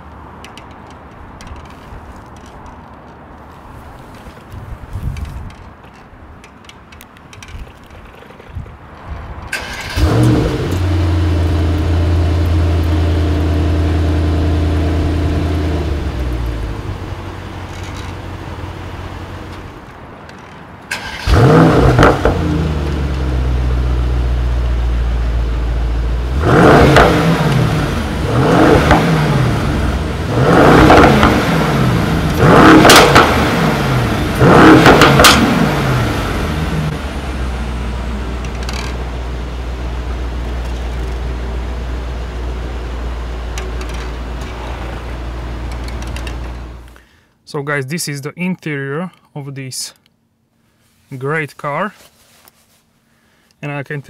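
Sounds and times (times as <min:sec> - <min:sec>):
car engine starting and idling: 0:09.4 - 0:47.0
engine revving: 0:09.6 - 0:16.8, 0:20.9 - 0:24.4, 0:26.2 - 0:39.0.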